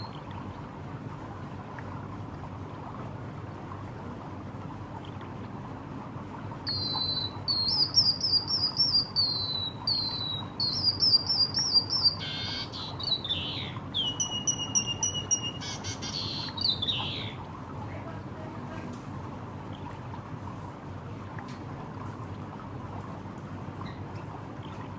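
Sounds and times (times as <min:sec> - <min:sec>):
bird singing chirped song: 0:06.7 - 0:17.4.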